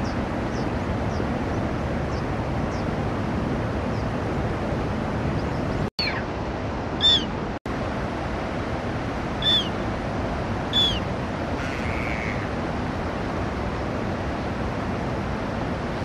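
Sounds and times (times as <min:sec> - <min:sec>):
gull calling: 0:06.0 - 0:06.3, 0:07.0 - 0:07.4, 0:09.4 - 0:09.8, 0:10.7 - 0:12.5.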